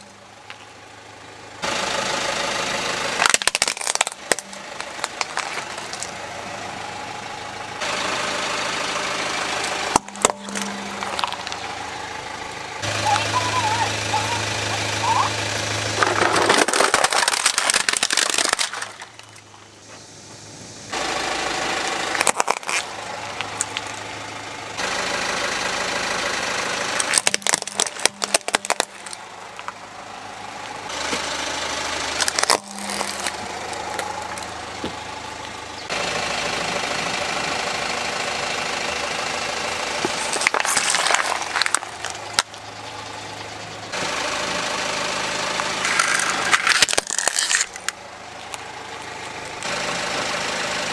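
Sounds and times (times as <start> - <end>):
car engine idling: 0.0 - 50.9
plastic toys crushed under tyre: 3.2 - 6.2, 9.6 - 11.8, 15.8 - 19.6, 21.9 - 24.0, 26.9 - 29.8, 32.0 - 35.0, 40.0 - 42.6, 45.5 - 49.7.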